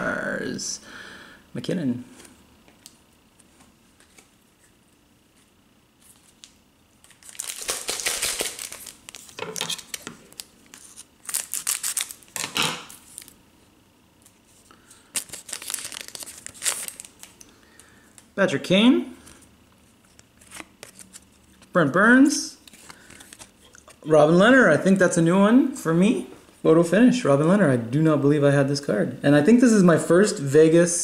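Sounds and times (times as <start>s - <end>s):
foil wrapper crinkling: 6.1s - 13.4s, 14.9s - 18.3s.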